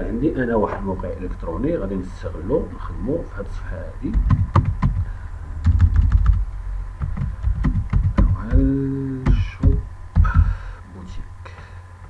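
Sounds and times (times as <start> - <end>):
low steady hum: 0.0 - 12.0
keyboard keys clicking: 5.6 - 6.4, 7.0 - 8.6
man saying uhh: 8.3 - 11.2.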